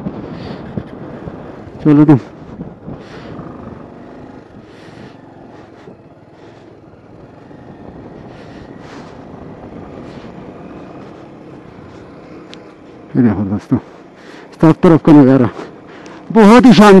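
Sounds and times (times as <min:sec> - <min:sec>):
wind rush on microphone: 0:00.0 - 0:12.6
motorcycle engine running: 0:00.0 - 0:17.0.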